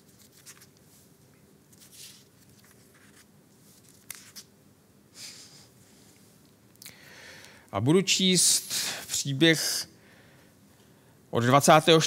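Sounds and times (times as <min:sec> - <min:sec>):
thin pages turning: 0:00.0 - 0:01.0, 0:01.7 - 0:04.5.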